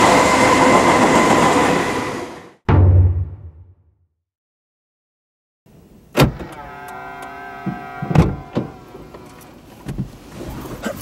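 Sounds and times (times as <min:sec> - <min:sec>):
knocks and thuds: 0:02.7 - 0:03.6
loud thump: 0:02.7 - 0:03.8.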